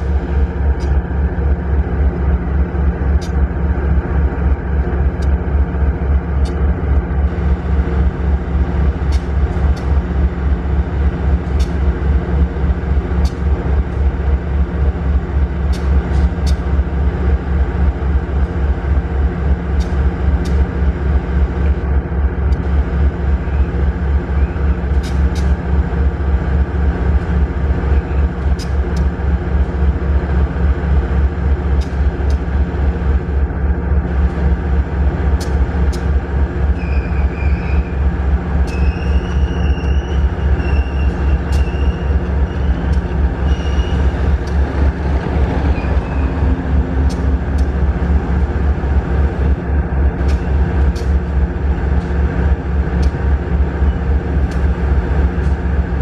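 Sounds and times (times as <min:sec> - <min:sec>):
locomotive engine throbbing: 0:00.0 - 0:56.0.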